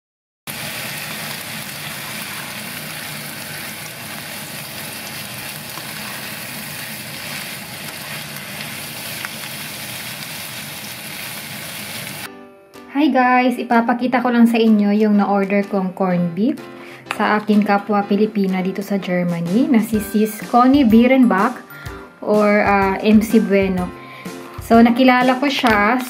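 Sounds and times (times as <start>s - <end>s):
meat and onions sizzling in a pan: 0.5s - 12.3s
spatula stirring in a pan: 1.1s - 11.4s.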